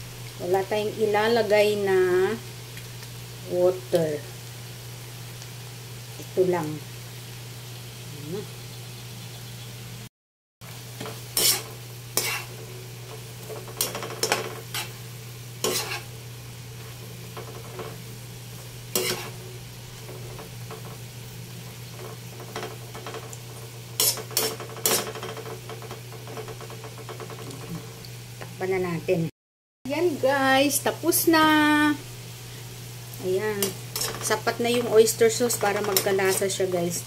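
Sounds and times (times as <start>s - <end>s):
light sizzle: 0.0s - 29.3s, 29.9s - 37.0s
spatula scraping a wok: 10.9s - 16.2s, 16.8s - 27.9s, 33.4s - 37.0s.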